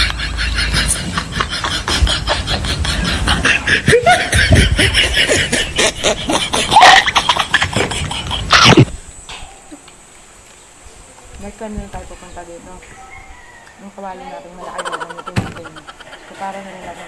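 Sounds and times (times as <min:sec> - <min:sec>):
people snickering and laughing: 0:00.0 - 0:09.0, 0:14.6 - 0:16.4.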